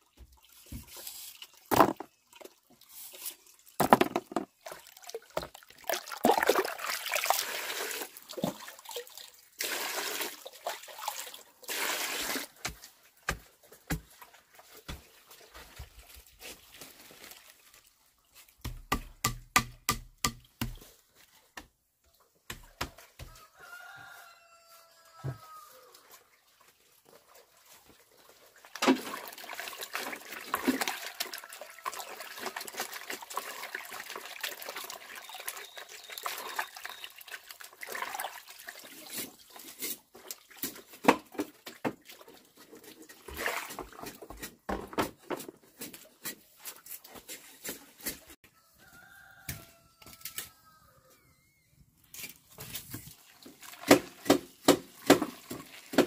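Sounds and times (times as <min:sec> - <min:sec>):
sharp knocks and clatter: 0:03.8 - 0:04.5.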